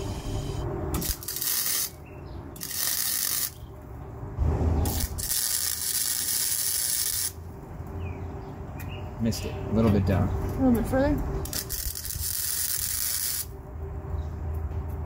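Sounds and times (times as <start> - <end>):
welder arc crackling hiss: 0.0 - 2.0, 2.6 - 3.6, 4.8 - 7.4, 11.5 - 13.5.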